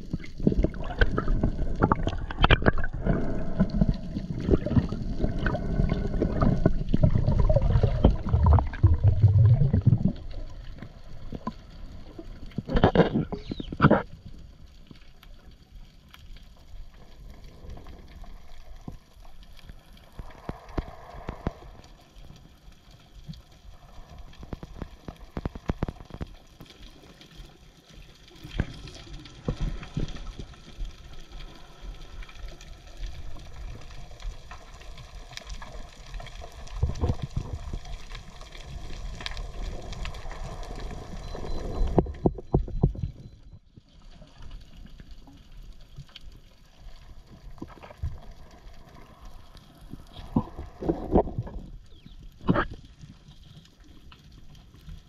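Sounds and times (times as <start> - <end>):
water bubbling surges: 0.0 - 14.0
sharp clicks and crackles: 0.0 - 55.0
steady underwater hiss: 17.1 - 22.9.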